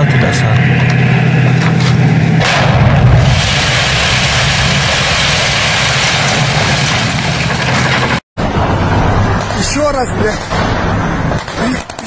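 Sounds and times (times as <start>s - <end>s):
tank engine drone: 0.0s - 12.0s
loud blast: 2.3s - 9.5s.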